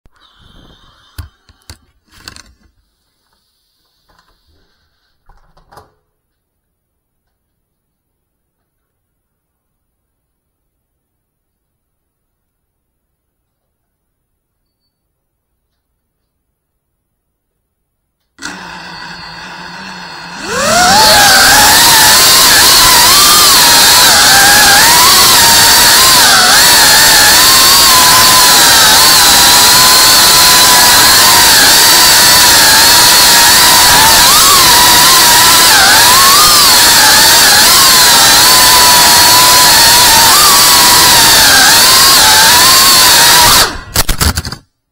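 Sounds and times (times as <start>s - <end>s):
quadcopter motors whining: 0.2s - 1.7s, 18.4s - 44.0s.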